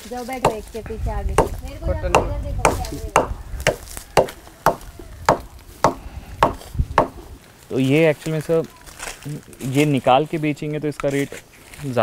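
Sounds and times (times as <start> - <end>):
sharp knocks on wooden plank: 1.4 - 7.2.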